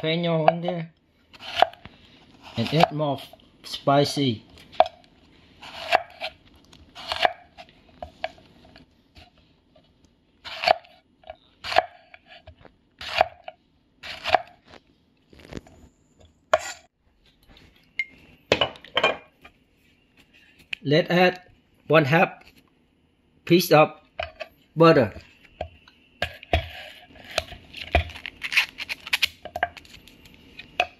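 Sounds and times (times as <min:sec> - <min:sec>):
knife slicing pepper on board: 0:07.0 - 0:07.7.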